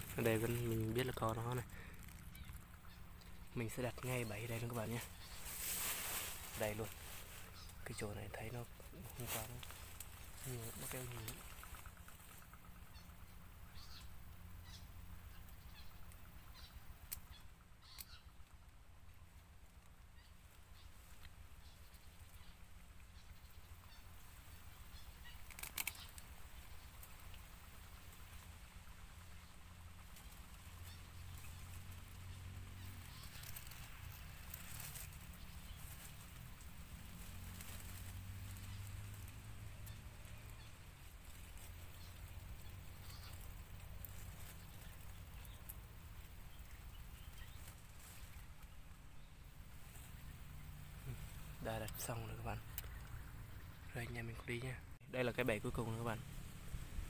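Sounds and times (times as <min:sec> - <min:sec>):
short high bird calls: 0:00.0 - 0:18.4, 0:20.1 - 0:27.1, 0:41.9 - 0:48.4
dry leaves and twigs crackling: 0:00.0 - 0:57.0
low steady hum: 0:00.0 - 0:57.0
sharp clicks: 0:25.3 - 0:26.3.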